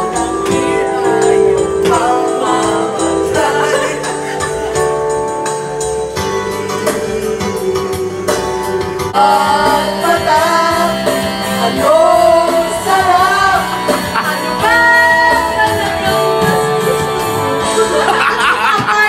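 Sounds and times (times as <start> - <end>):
woman singing karaoke: 0.0 - 5.6, 6.5 - 19.0
backing music: 0.0 - 19.0.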